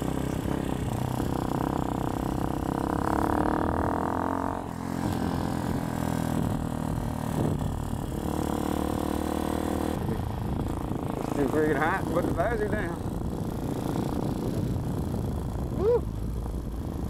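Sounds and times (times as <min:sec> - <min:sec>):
motorcycle engine accelerating: 0:00.0 - 0:17.0.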